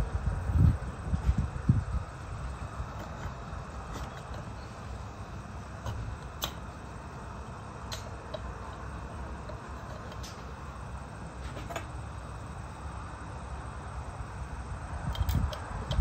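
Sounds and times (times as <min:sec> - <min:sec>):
sharp metal clicks: 0:05.8 - 0:06.7, 0:07.9 - 0:08.6, 0:15.0 - 0:16.0.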